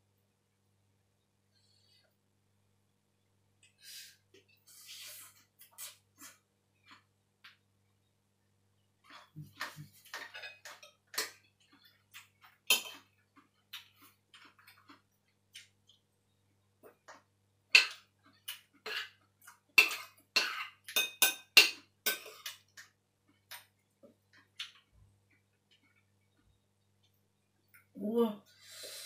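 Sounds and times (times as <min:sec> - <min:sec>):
cutlery clinking against a bowl: 0:09.1 - 0:13.2, 0:17.7 - 0:22.9.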